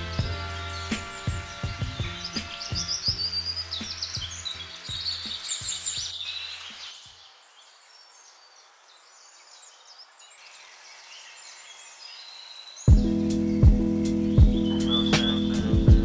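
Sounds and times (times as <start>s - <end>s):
background music: 0.0s - 6.0s, 12.9s - 16.0s
small birds chirping: 0.0s - 16.0s.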